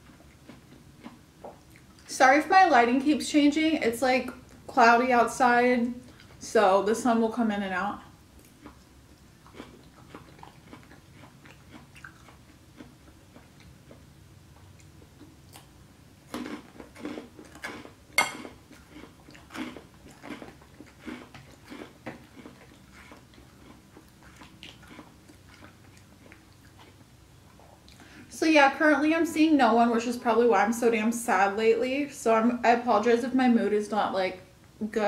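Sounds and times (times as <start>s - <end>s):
chewing crunchy salad: 0.0s - 2.1s, 8.0s - 28.2s.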